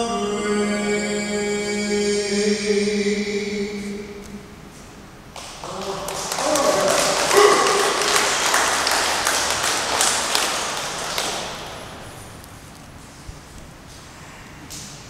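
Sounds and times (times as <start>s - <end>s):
audience clapping: 5.3s - 12.4s.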